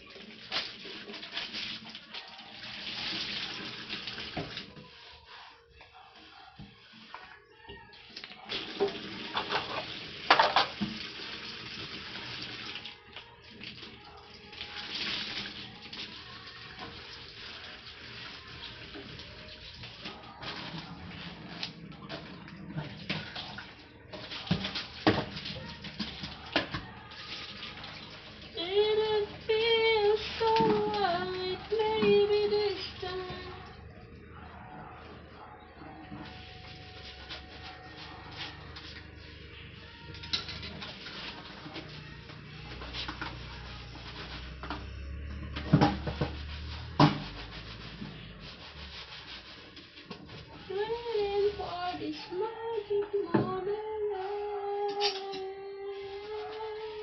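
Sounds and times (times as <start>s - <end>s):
dishes splashing and clattering: 8.6s - 12.8s, 18.2s - 28.6s, 40.2s - 42.0s, 44.1s - 47.5s
plastic dishes clattering: 8.8s - 10.9s
high voice singing: 24.5s - 46.1s, 50.5s - 57.0s.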